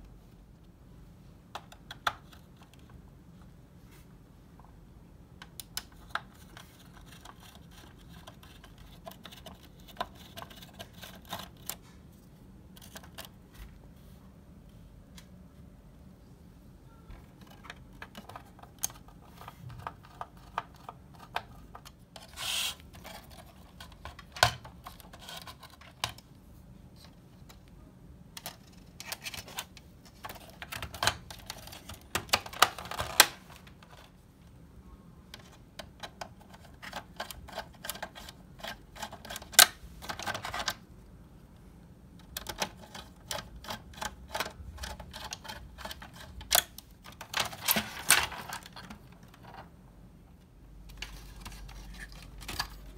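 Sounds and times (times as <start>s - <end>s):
plastic housing clicks and rattles: 5.4s - 11.8s, 17.3s - 26.2s, 28.4s - 34.1s, 42.2s - 49.7s, 50.9s - 52.9s.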